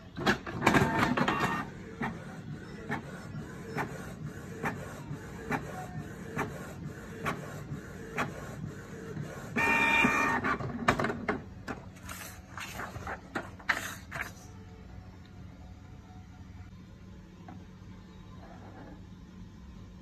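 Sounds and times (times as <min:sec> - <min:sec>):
steady mechanical hum: 0:00.0 - 0:20.0
printer motor whine: 0:00.2 - 0:11.0.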